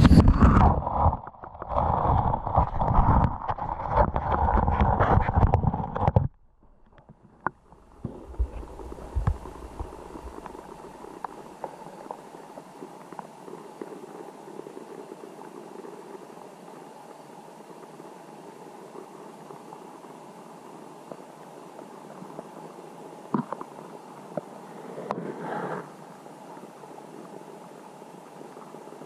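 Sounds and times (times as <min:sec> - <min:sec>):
underwater churning water: 0:00.0 - 0:29.0
steady hiss: 0:07.3 - 0:29.0.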